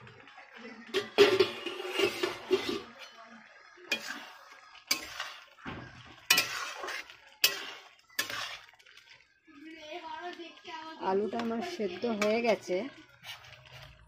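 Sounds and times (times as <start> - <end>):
metal spatula scraping a pot: 0.9 - 9.3, 11.3 - 14.0
metal lid clanging: 1.0 - 3.0.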